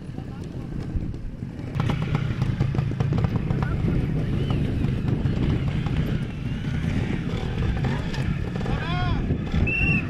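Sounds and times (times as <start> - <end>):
motorcycle engine at low revs: 0.2 - 10.0.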